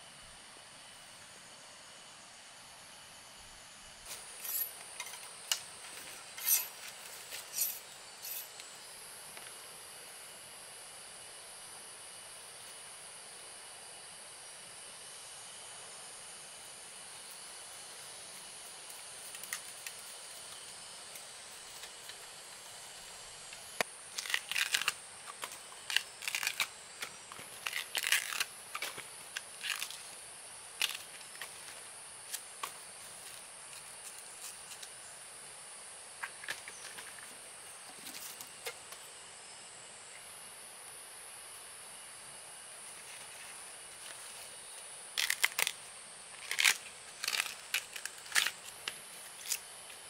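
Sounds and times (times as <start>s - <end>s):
bamboo husk tearing and snapping: 23.6s - 30.2s, 30.8s - 32.8s, 45.1s - 49.7s.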